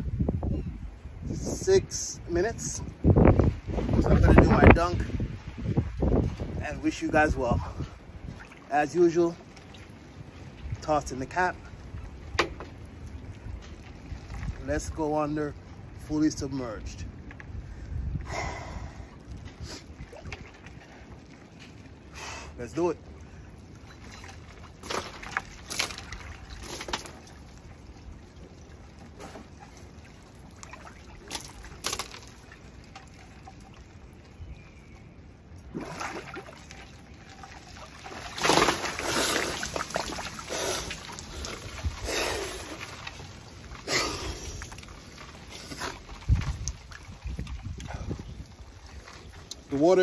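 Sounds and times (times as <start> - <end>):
water sloshing and splashing: 2.5 - 18.2, 18.8 - 50.0
water running off body: 35.7 - 50.0.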